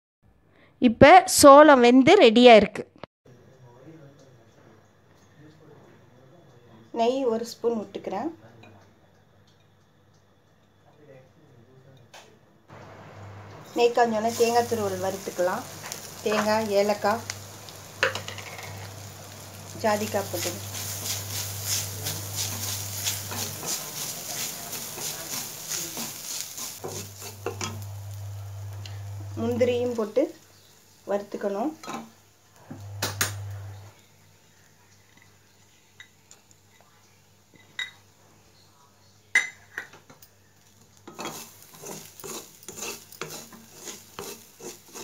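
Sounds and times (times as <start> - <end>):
faint sizzle: 3.3 - 45.0
wooden spatula scraping pan: 12.8 - 28.2, 41.1 - 45.0.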